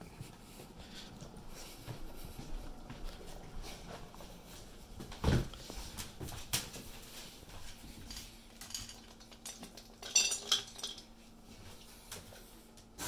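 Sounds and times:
footsteps: 0.0 - 9.0.

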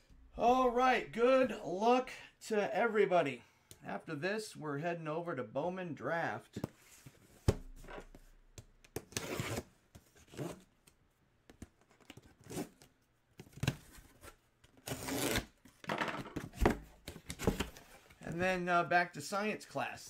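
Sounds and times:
tape and cardboard tearing: 8.9 - 9.7, 13.5 - 15.6.

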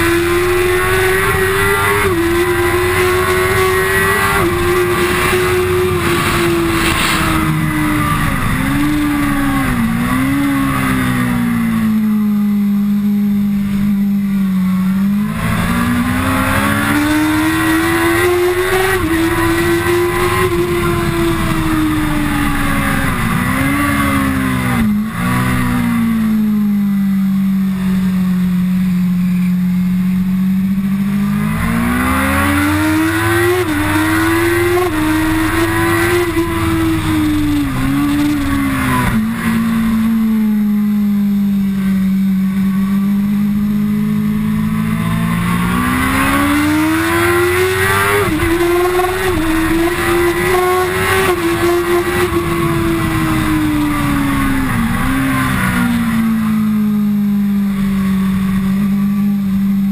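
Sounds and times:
motorcycle engine revving: 0.0 - 59.9
wind rushing: 3.3 - 10.5.

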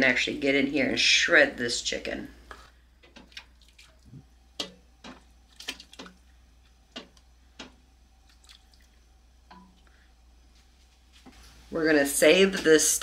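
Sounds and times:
liquid dripping and splashing: 3.0 - 9.9
metal tongs tapping: 4.6 - 5.2, 9.5 - 9.8.

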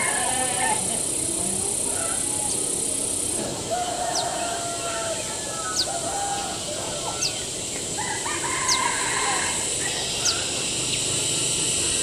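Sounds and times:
insects buzzing: 0.0 - 12.0
rooster crowing: 3.7 - 7.3, 8.0 - 10.1.

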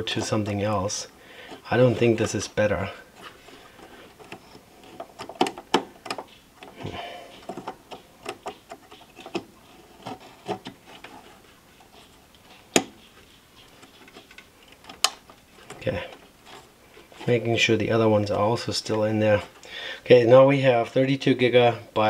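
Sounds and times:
plastic clicks and taps: 5.1 - 11.1.

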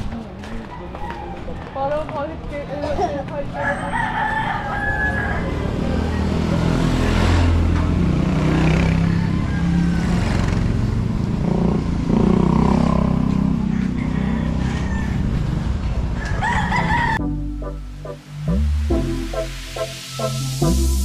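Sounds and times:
rooster crowing: 3.6 - 6.3, 8.8 - 10.5, 13.6 - 17.2
motorcycle engine passing: 5.3 - 16.2.

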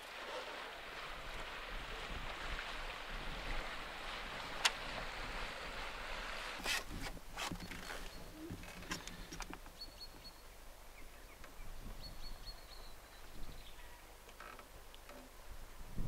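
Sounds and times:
water lapping on boat hull: 0.0 - 9.7
wind: 0.0 - 16.0.

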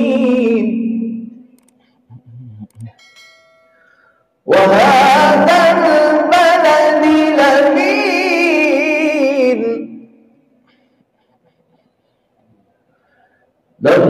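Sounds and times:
man chanting melodically: 0.0 - 1.4, 4.5 - 10.1, 13.8 - 14.0.

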